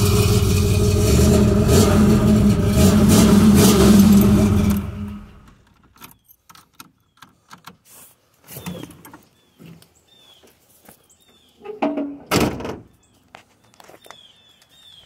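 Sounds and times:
bird chirping: 8.4 - 11.8, 12.8 - 15.0
thump: 11.9 - 12.8.

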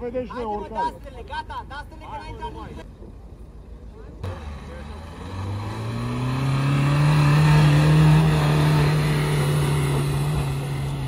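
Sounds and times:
car engine revving under load: 4.2 - 11.0.

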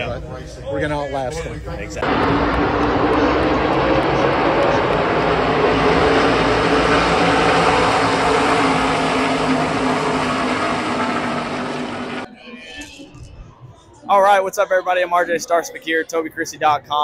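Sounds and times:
stock cars racing past: 2.0 - 12.3.

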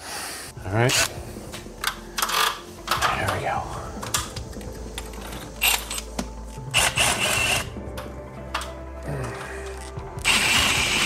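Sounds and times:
cordless drill boring: 6.8 - 7.7, 10.2 - 11.0.

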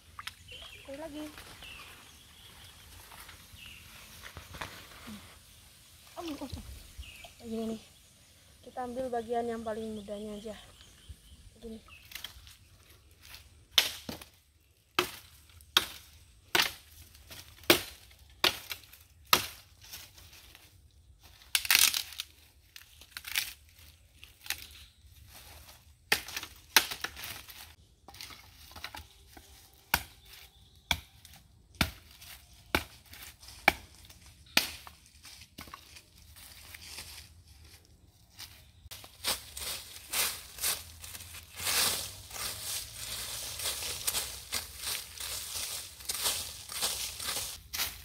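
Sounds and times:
leaves rustling: 0.0 - 30.6, 31.9 - 48.0
plant stalks snapping: 21.4 - 24.8.

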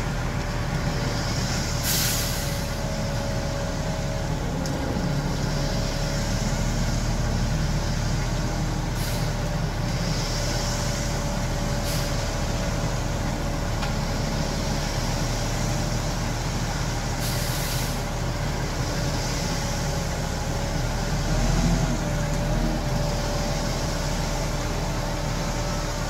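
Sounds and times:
diesel truck engine running: 0.0 - 26.0
short air hisses: 1.2 - 2.8, 9.0 - 9.4, 11.8 - 12.2, 17.2 - 18.1.

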